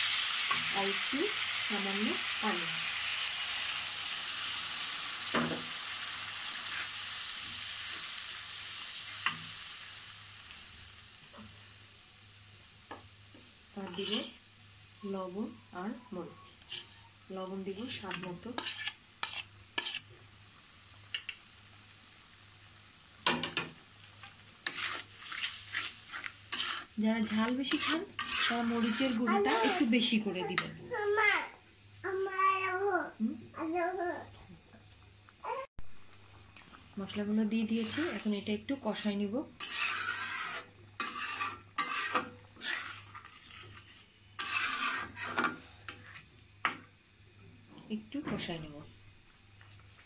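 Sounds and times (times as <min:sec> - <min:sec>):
faint sizzle: 0:00.0 - 0:50.0
metal spoon scraping a pan: 0:13.8 - 0:14.3, 0:16.3 - 0:20.1, 0:23.3 - 0:30.7, 0:37.7 - 0:38.3, 0:39.6 - 0:46.8.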